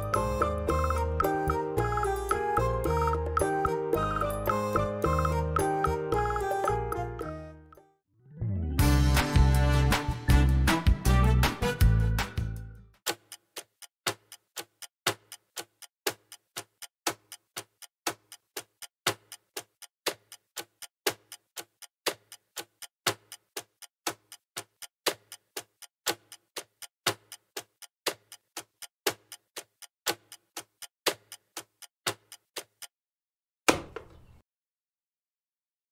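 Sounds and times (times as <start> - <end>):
clock ticking: 0.0 - 7.3, 13.0 - 32.9.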